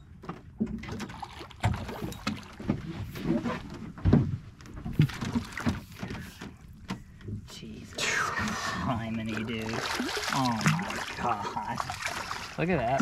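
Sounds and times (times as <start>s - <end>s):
water slapping against boat hull: 0.2s - 13.0s
fish splashing at the surface: 8.0s - 13.0s.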